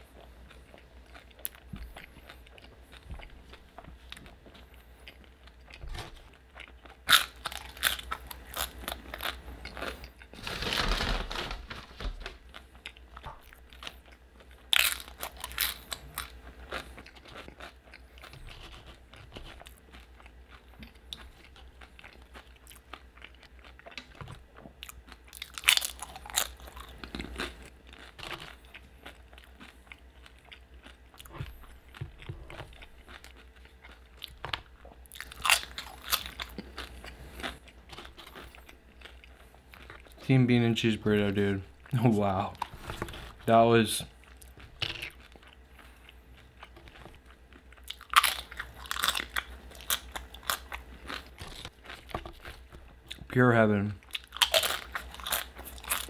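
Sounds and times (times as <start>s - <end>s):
soft chewing: 0.0s - 10.4s, 12.2s - 56.0s
chips crunching: 6.0s - 40.2s, 46.6s - 53.2s, 54.1s - 56.0s.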